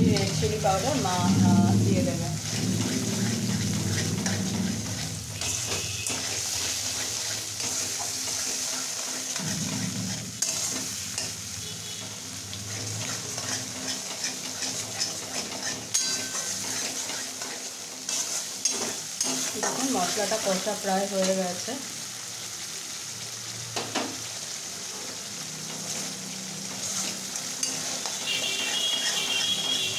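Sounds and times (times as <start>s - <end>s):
spatula scraping a metal pan: 0.0s - 20.7s, 25.7s - 29.9s
spice paste sizzling: 0.0s - 29.9s
spatula clinking against pan: 14.6s - 17.2s.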